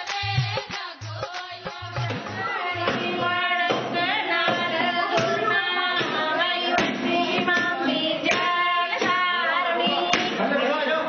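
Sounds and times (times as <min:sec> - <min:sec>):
sharp beats: 0:00.0 - 0:06.2
women singing folk songs together: 0:00.0 - 0:10.6.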